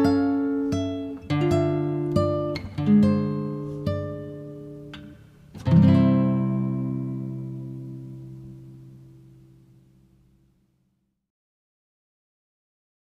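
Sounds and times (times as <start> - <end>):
plucked string instrument chords: 0.0 - 10.2.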